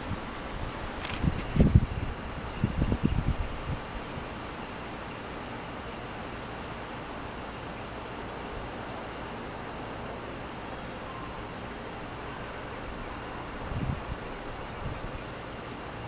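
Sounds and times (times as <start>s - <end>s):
cicada buzzing: 1.4s - 15.6s.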